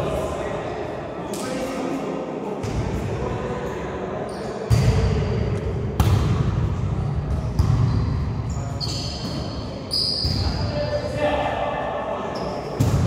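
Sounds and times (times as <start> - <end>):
volleyball being struck: 6.0 - 6.5.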